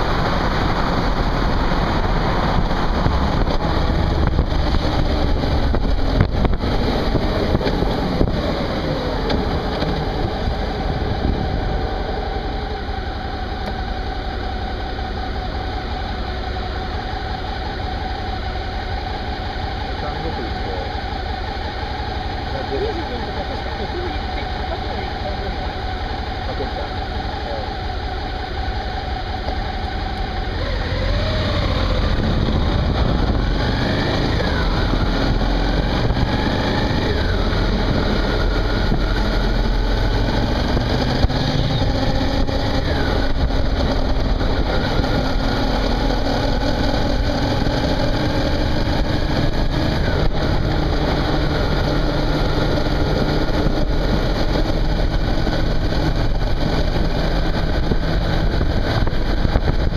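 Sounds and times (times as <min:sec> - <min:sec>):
wind noise: 0:00.0 - 0:12.1, 0:29.9 - 0:59.9
motorcycle engine accelerating: 0:00.0 - 0:59.9.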